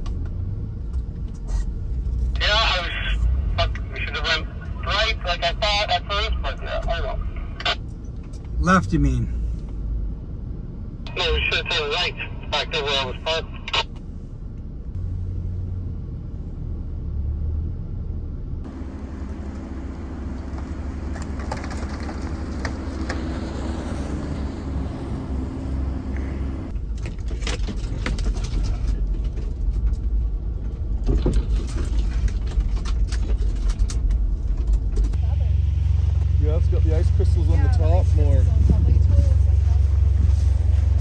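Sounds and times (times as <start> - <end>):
jeep engine low rumble: 0.0 - 41.0
knocks and rattles: 26.8 - 35.2.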